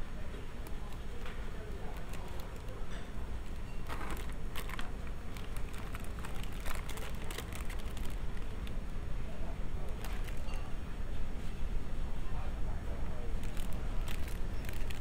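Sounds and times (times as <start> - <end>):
low background rumble: 0.0 - 15.0
plastic bags crinkling: 1.8 - 8.8, 9.9 - 10.7, 13.4 - 15.0.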